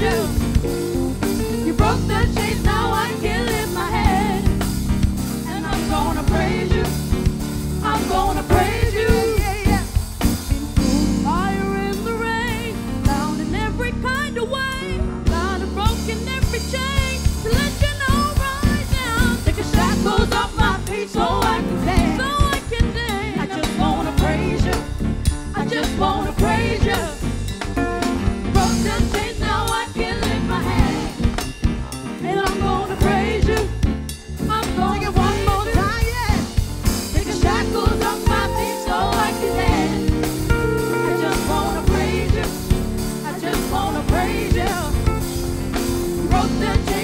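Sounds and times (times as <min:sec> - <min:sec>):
boy and girl singing: 0:00.0 - 0:00.5, 0:01.7 - 0:04.6, 0:05.5 - 0:07.1, 0:07.8 - 0:09.9, 0:19.1 - 0:24.9, 0:25.6 - 0:27.3, 0:28.6 - 0:33.8, 0:37.1 - 0:45.1, 0:46.3 - 0:47.0
backing music with beat: 0:00.0 - 0:12.1, 0:17.2 - 0:47.0.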